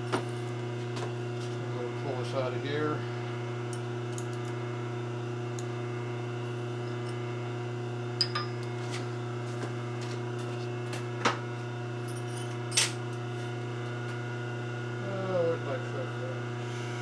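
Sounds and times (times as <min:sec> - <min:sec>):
steady electrical hum: 0:00.0 - 0:17.0
metal tools clinking: 0:12.1 - 0:13.0.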